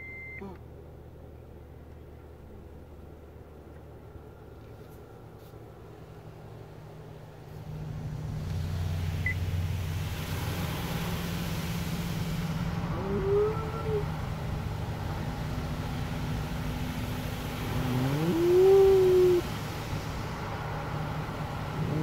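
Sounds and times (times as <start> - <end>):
car wash equipment droning: 0.0 - 22.0
rising wavering call: 12.8 - 14.2, 17.7 - 19.6.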